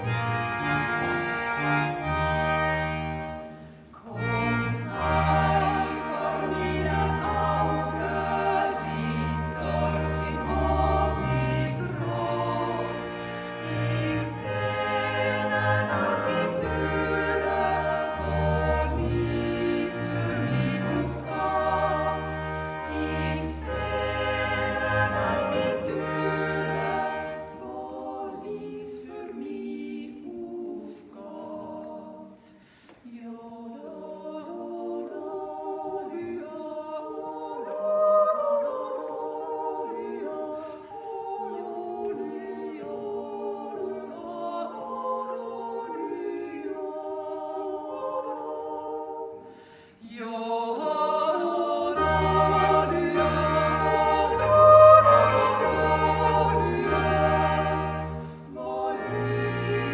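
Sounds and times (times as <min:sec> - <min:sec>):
double bass: 0:00.0 - 0:03.5, 0:04.2 - 0:27.5, 0:52.0 - 0:59.9
button accordion: 0:00.0 - 0:28.8, 0:51.7 - 0:59.9
women singing yodel in harmony: 0:04.0 - 0:59.9.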